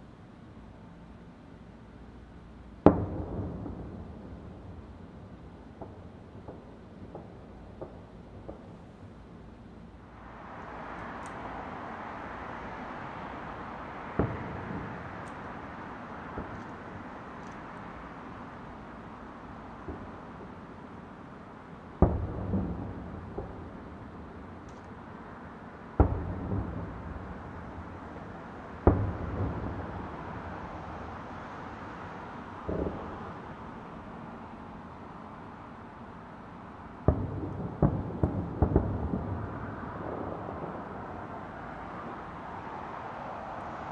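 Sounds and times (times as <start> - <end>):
fireworks booming: 2.8 - 9.1, 13.6 - 17.1, 22.0 - 24.6, 26.0 - 31.2, 32.6 - 34.1, 37.0 - 42.2
rolling echo: 37.0 - 41.2
steady rushing noise: 38.6 - 43.9.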